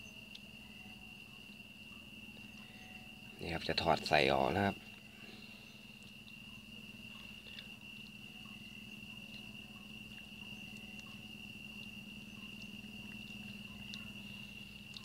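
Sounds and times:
low steady hum: 0:00.0 - 0:15.0
night insects chirring: 0:00.0 - 0:15.0.

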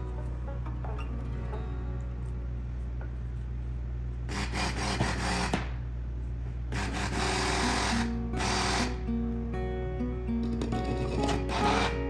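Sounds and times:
guitar background music: 0:00.0 - 0:03.6, 0:06.8 - 0:12.0
stick blender running: 0:04.3 - 0:05.7, 0:06.7 - 0:09.0, 0:11.0 - 0:12.0.

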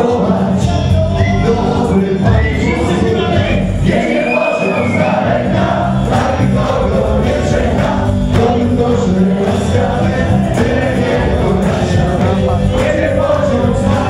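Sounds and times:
live dance music with vocals: 0:00.0 - 0:14.0.

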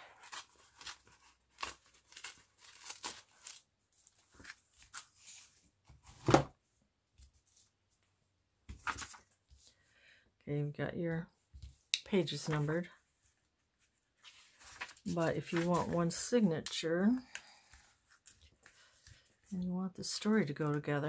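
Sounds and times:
paper crackling and tearing: 0:00.0 - 0:05.4.

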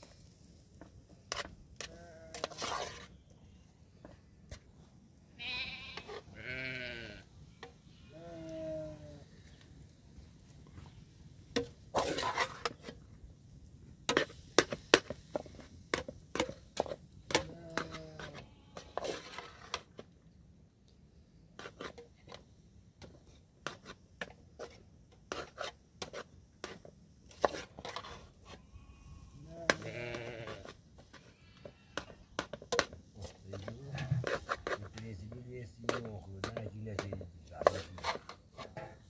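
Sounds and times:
metal ladle scraping pot: 0:01.3 - 0:03.2, 0:11.6 - 0:12.9, 0:25.3 - 0:28.6, 0:29.7 - 0:35.0, 0:35.9 - 0:39.0
sheep bleating: 0:05.4 - 0:07.2, 0:17.5 - 0:19.0, 0:28.6 - 0:30.6.

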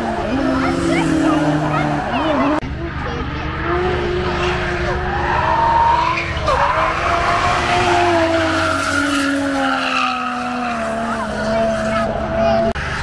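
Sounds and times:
car engines: 0:00.0 - 0:13.0.

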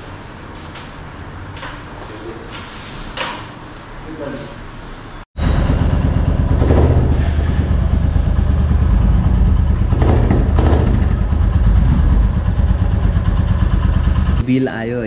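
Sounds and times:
motorcycle engine idling: 0:05.4 - 0:14.4.

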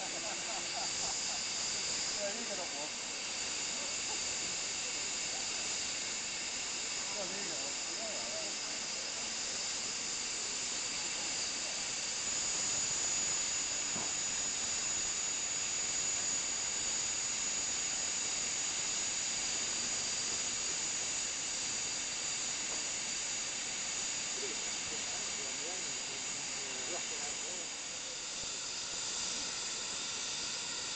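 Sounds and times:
steam locomotive hissing: 0:00.0 - 0:30.9
thin high steady tone: 0:23.1 - 0:30.9.

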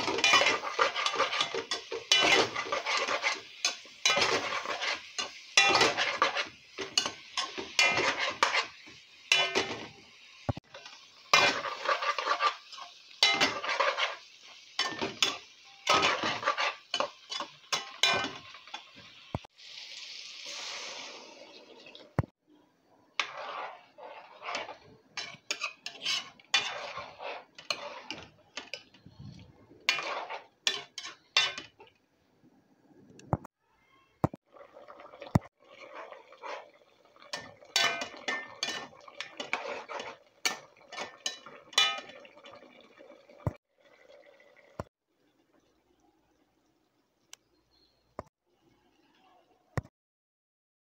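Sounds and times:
spoon scraping metal pot: 0:00.0 - 0:09.9, 0:10.5 - 0:14.2, 0:14.8 - 0:18.8, 0:23.2 - 0:31.9, 0:35.3 - 0:42.2
water hissing in hot pot: 0:00.0 - 0:22.2.

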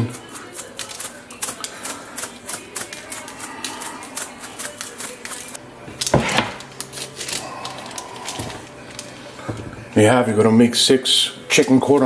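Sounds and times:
spice jar rattling: 0:00.2 - 0:05.6.

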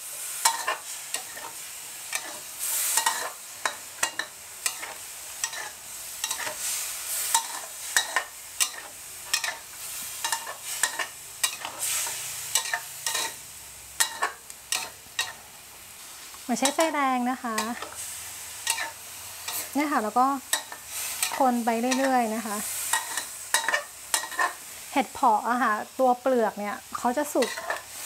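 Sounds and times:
food sizzling: 0:00.0 - 0:28.0.

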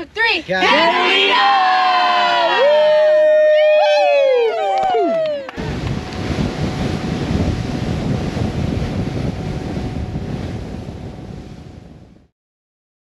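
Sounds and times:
wind buffeting microphone: 0:03.1 - 0:12.3
water rushing: 0:04.9 - 0:12.2.

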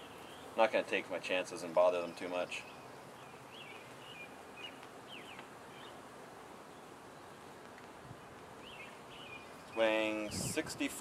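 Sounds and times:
light drizzle hiss: 0:00.0 - 0:11.0
small bird chirping: 0:02.0 - 0:06.0, 0:08.2 - 0:10.5.

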